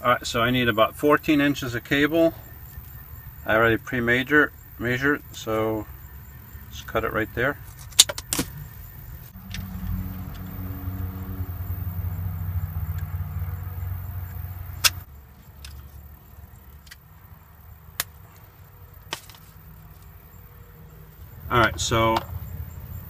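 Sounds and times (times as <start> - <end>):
engine humming: 0.0 - 23.0
low rumble: 9.3 - 15.1.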